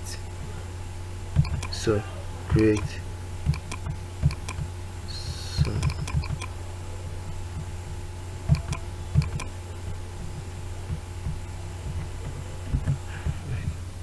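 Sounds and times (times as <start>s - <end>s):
steady low hum: 0.0s - 14.0s
mouse and keyboard clicks: 1.4s - 1.8s, 3.5s - 4.7s, 5.6s - 6.5s, 8.5s - 9.5s.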